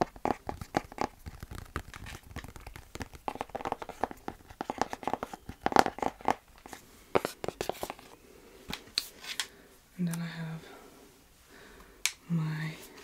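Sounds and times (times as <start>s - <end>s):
small crackling clicks and scratches: 0.0s - 8.1s
hands tapping objects: 0.0s - 9.5s.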